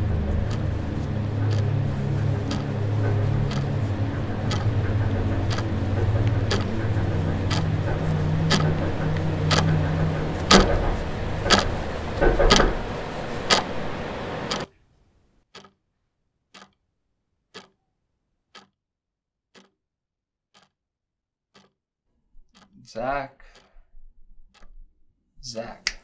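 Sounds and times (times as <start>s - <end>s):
dense noise with low hum: 0.0s - 14.7s
wall clock ticking: 0.0s - 14.7s, 15.5s - 15.8s, 16.5s - 16.8s, 17.5s - 17.8s, 18.5s - 18.8s, 19.5s - 19.8s, 20.5s - 20.8s, 21.5s - 21.8s, 22.5s - 23.8s, 24.5s - 24.8s.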